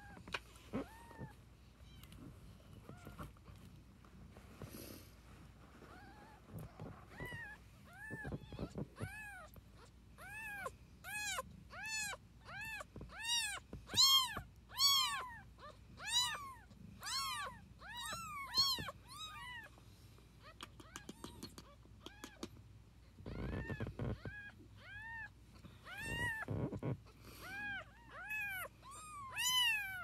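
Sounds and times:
kittens mewing: 23.2s - 30.0s.

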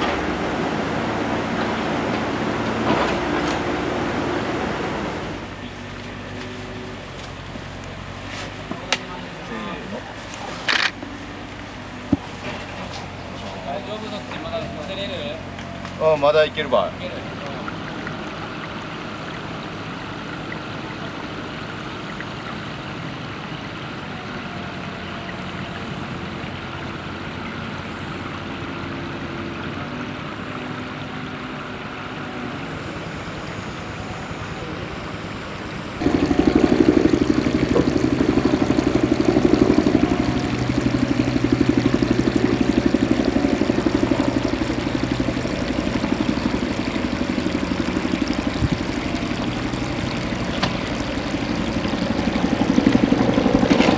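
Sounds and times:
outdoor background noise: 0.0s - 53.9s
steady low rumble: 35.7s - 53.9s.

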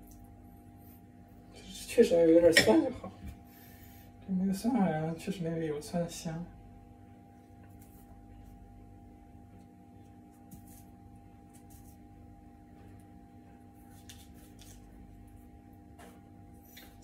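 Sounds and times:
low electrical hum: 0.0s - 17.0s
hands rubbing dough: 7.6s - 8.7s, 10.0s - 12.2s, 13.6s - 15.6s.

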